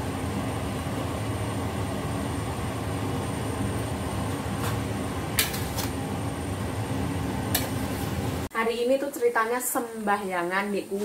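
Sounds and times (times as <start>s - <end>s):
extractor fan rumble: 0.0s - 8.5s.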